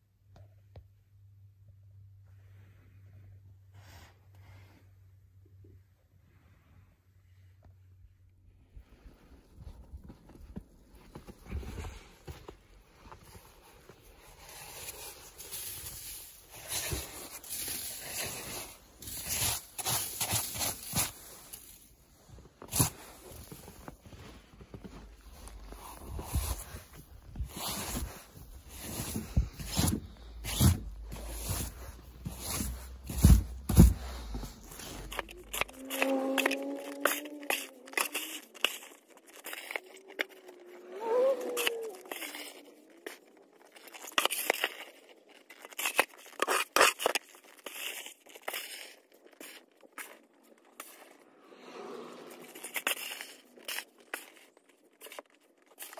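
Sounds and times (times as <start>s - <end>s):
snow being swept: 14.1s - 22.0s, 25.1s - 38.6s.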